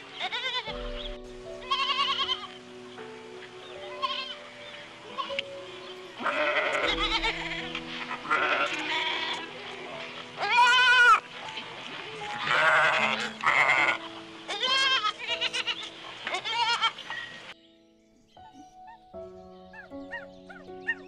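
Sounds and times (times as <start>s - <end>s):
calm background music: 0.0s - 21.0s
goats bleating: 6.2s - 11.2s, 12.3s - 17.0s.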